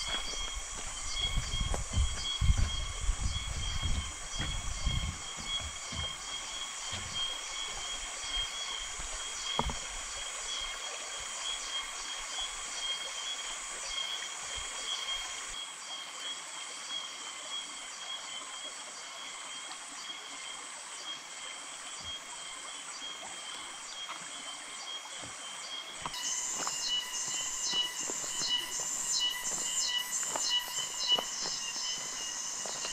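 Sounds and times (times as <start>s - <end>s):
insects chorus shrill whine: 0.0s - 9.8s, 26.0s - 32.9s.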